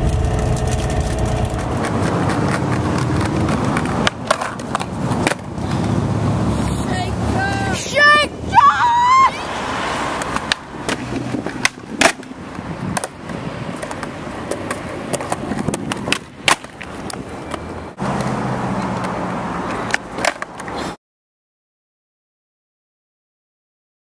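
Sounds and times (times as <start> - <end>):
skateboard clacking on ground: 1.8 - 6.9, 10.2 - 21.0
skateboard wheels rolling on paving: 1.8 - 21.0.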